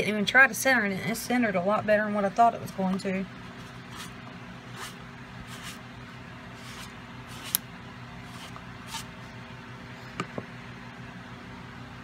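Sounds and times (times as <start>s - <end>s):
steady low hum: 0.0s - 12.0s
soft swishing and rubbing: 3.6s - 5.8s, 6.6s - 7.6s, 8.2s - 9.1s.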